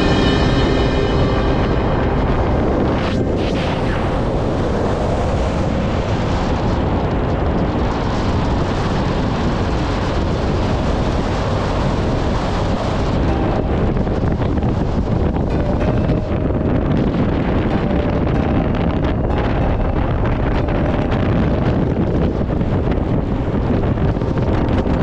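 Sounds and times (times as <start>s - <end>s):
motorcycle running: 0.0s - 25.0s
wind buffeting microphone: 0.0s - 25.0s.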